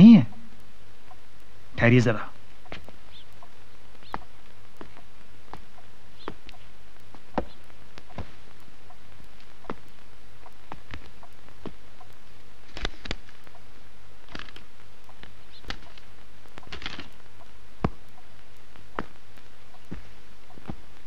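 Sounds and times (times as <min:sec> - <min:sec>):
steady hiss and hum: 0:00.0 - 0:21.0
book pages rustling: 0:12.6 - 0:13.4, 0:16.7 - 0:17.2.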